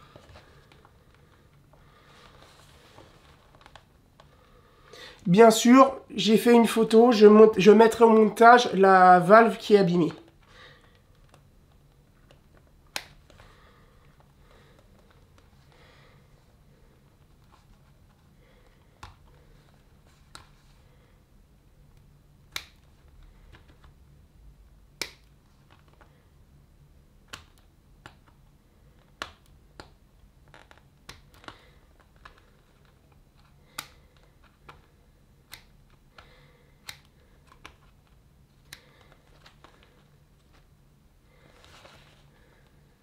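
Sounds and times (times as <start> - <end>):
scissors snipping vinyl: 35.4 - 36.2, 36.8 - 38.0.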